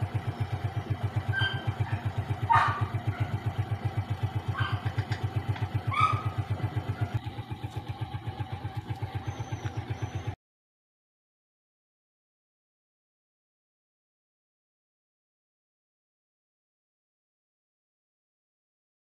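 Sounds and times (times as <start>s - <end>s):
motorcycle engine idling: 0.0s - 10.4s.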